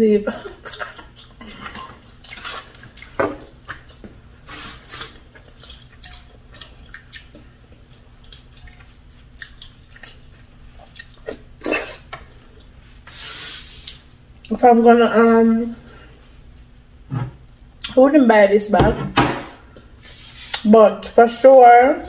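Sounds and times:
chewing and wet mouth sounds: 0.4 - 12.8
lip smacks: 5.0 - 7.5.

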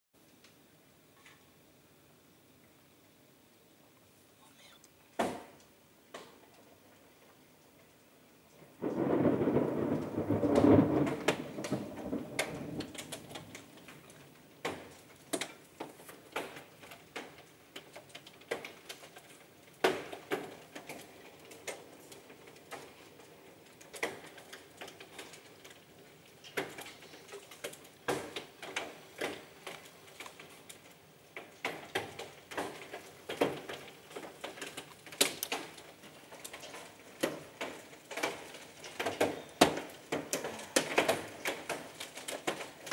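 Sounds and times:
hail on a corrugated roof: 5.2 - 42.9
thunder peal: 8.7 - 14.8.

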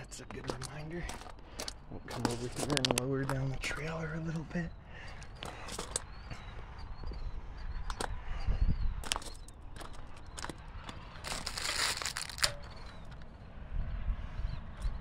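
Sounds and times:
footsteps crunching on gravel: 0.0 - 7.3, 9.0 - 13.1.

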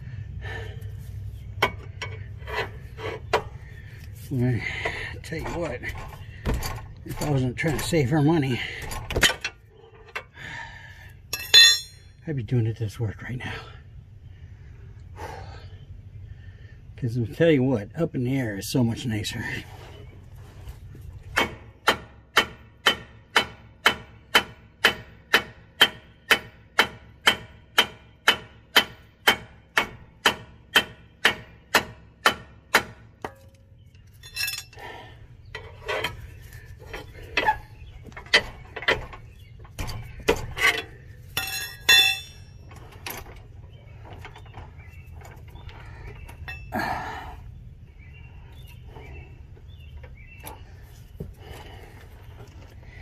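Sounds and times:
metal knocks and clinks: 11.3 - 12.2, 33.2 - 36.2, 36.8 - 43.4, 46.2 - 46.8.

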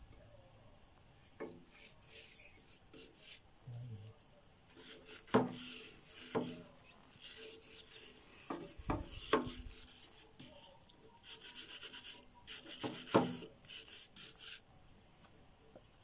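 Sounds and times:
file scraping metal: 4.7 - 10.6.

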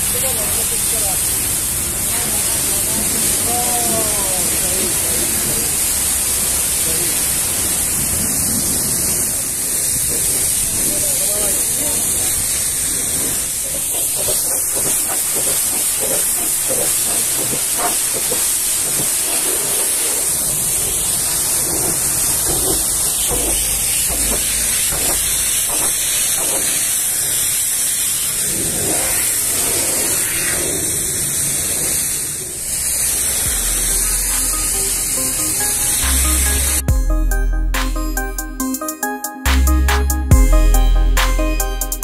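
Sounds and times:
pressure washer spray hissing: 0.0 - 30.6.

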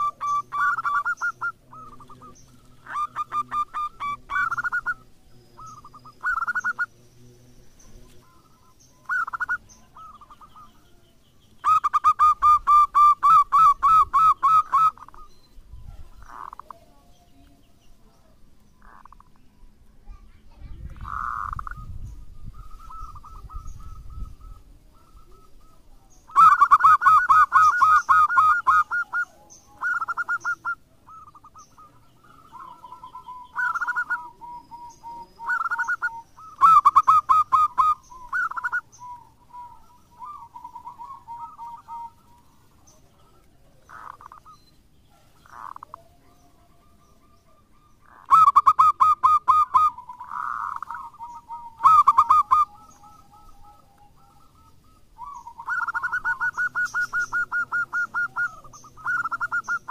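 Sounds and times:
dove cooing: 0.0 - 19.4, 20.8 - 59.9.

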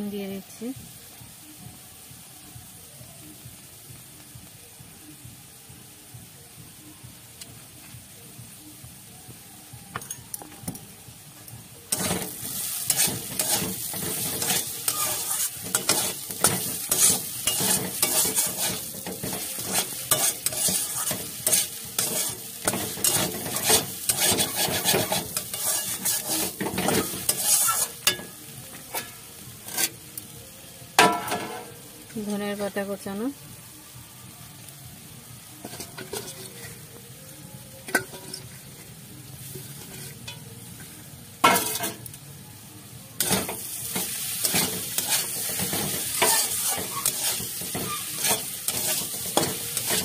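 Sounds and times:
food sizzling in a hot pan: 0.0 - 50.0
spatula stirring and scraping: 11.9 - 28.2, 35.6 - 36.8, 39.6 - 40.4, 43.2 - 50.0.

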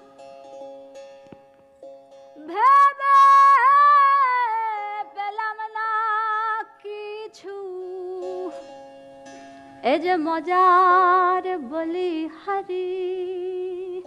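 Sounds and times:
woman singing: 2.4 - 8.6, 9.8 - 14.0.

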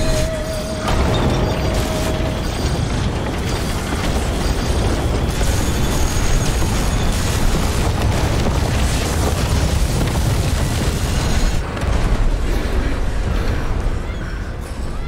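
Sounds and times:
high metal screech: 0.0 - 7.3
train rumbling and grinding: 0.0 - 15.0.

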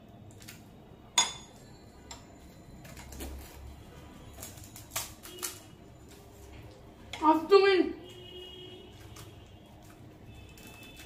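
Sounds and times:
crisp shells cracking: 2.8 - 6.8, 8.9 - 11.0
teeth crunching crisp shells: 4.3 - 6.2, 8.9 - 11.0.

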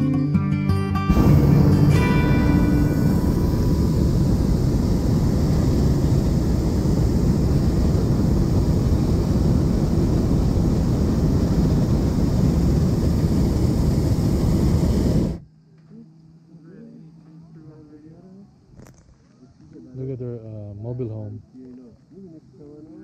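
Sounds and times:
propane burner blast: 1.1 - 15.4.

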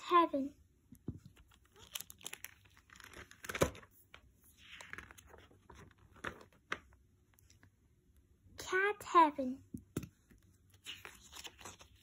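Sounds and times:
plastic and paper crinkling: 1.3 - 6.8, 10.7 - 12.0.

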